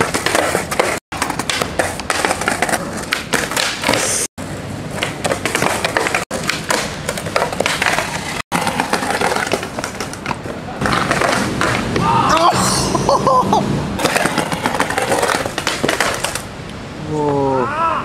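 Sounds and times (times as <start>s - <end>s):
skateboard clattering on concrete: 0.0s - 4.3s, 4.9s - 12.0s, 14.0s - 16.5s
skateboard trucks grinding: 0.0s - 16.6s.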